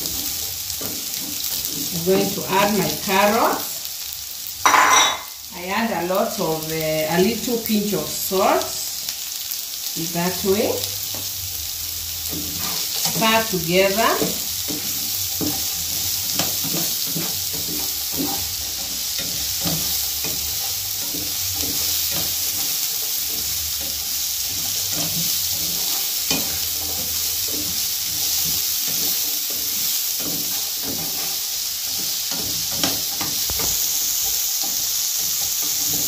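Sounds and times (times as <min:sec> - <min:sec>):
spatula scraping and knocking pan: 0:00.0 - 0:03.4, 0:04.6 - 0:05.4, 0:12.1 - 0:36.0
vegetables sizzling in a frying pan: 0:00.0 - 0:36.0.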